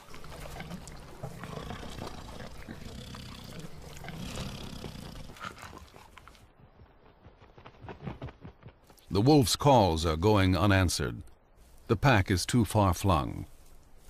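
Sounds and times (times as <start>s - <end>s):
bear growling low: 0.0s - 6.0s.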